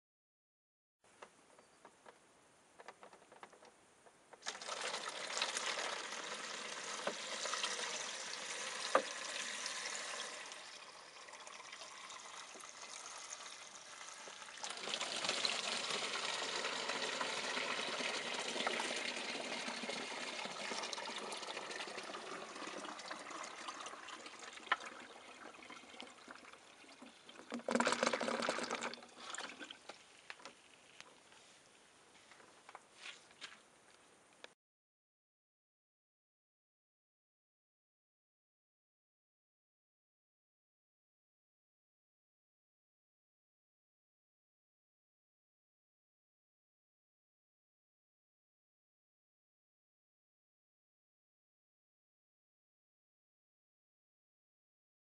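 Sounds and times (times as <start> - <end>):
water splashing and trickling: 4.4 - 31.2.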